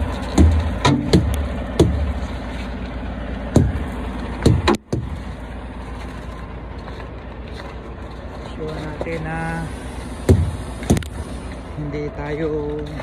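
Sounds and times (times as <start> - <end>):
hammer thudding on tires: 0.0 - 2.2, 3.5 - 3.8, 4.4 - 5.2, 10.2 - 11.1.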